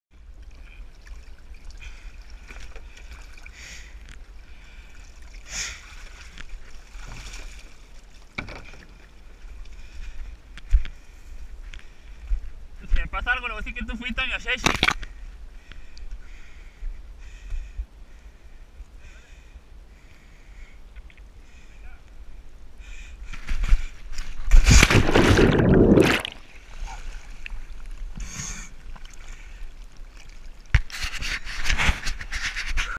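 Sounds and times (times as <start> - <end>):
splashing in water: 24.4 - 27.5
paddle splashing in water: 24.5 - 32.9.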